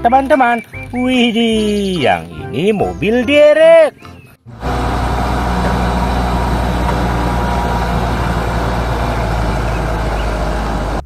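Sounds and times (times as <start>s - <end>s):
diesel engine running steadily: 4.5s - 11.0s.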